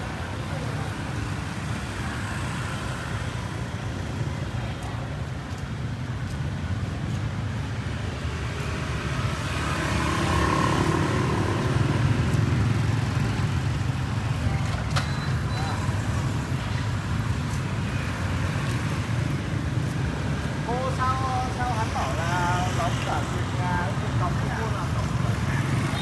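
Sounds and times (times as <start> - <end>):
passing vehicle engines rumbling: 0.0 - 26.0.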